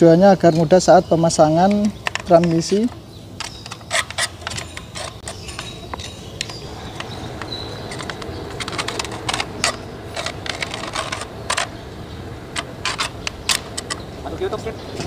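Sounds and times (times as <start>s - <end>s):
low background hum: 0.0s - 15.0s
screwdriver clicking and tapping metal: 1.7s - 11.7s.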